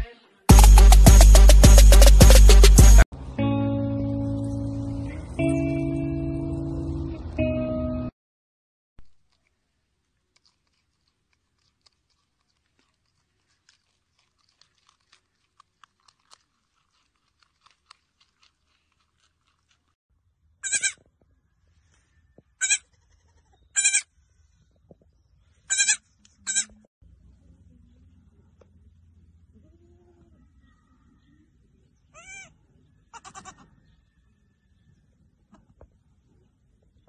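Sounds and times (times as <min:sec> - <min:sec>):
marmot chewing carrot: 0:09.0 - 0:20.0
goat kid bleating: 0:20.6 - 0:21.0, 0:22.6 - 0:24.1, 0:25.7 - 0:26.7, 0:32.2 - 0:33.7.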